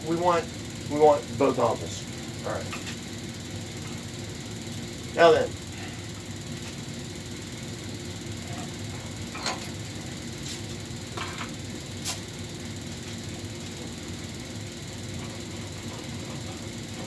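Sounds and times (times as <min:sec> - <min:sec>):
low machine hum: 0:00.0 - 0:17.0.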